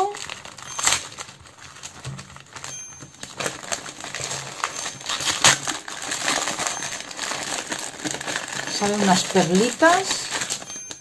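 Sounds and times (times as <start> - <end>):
gift wrapping crinkling: 0.0 - 11.0.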